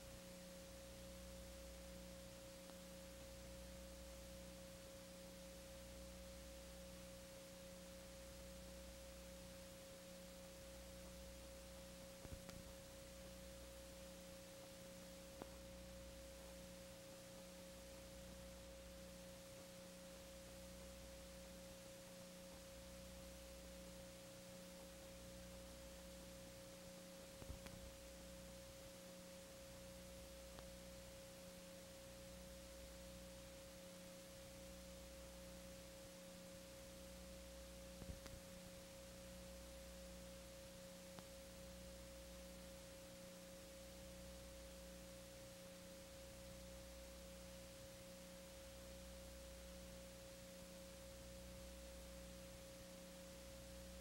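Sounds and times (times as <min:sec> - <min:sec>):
faint ticks: 0:00.0 - 0:04.0, 0:10.7 - 0:17.6, 0:26.6 - 0:28.8, 0:30.0 - 0:31.0, 0:37.9 - 0:39.7, 0:40.6 - 0:44.2
faint steady hum: 0:00.0 - 0:54.0.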